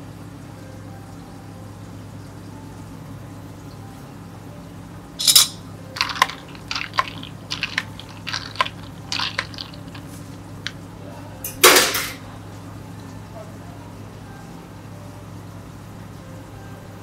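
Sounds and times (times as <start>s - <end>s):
ice clinking in cup: 5.2s - 10.4s.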